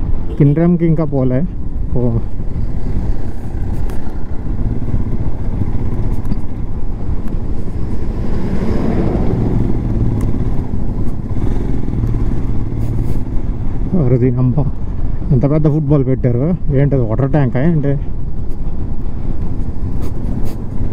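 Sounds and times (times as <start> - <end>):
wind rumble on microphone: 1.0 - 20.9
motorcycle engine running: 1.8 - 15.1.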